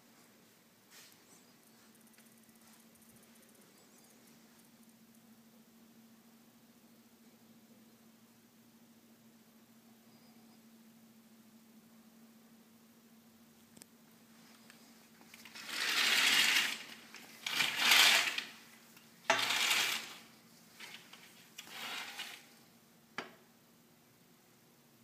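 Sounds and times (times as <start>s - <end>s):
metal door rattling and scraping: 15.5s - 18.6s, 19.3s - 20.2s, 20.8s - 22.5s.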